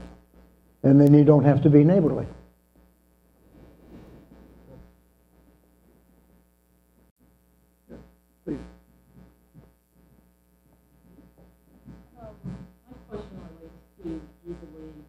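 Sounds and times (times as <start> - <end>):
electrical mains hum: 0.0 - 15.0
faint voice sounds: 7.9 - 8.7.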